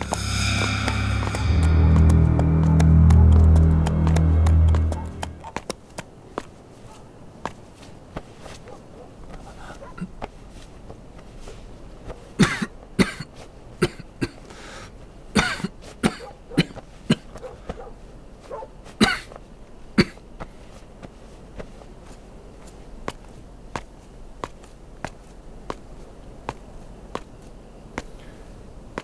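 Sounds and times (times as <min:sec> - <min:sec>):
person coughing: 0:12.4 - 0:14.4, 0:15.4 - 0:17.3, 0:19.0 - 0:19.4.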